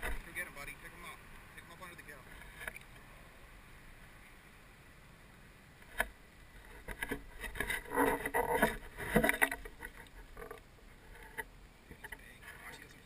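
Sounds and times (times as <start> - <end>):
shallow water splashing: 6.6 - 12.3.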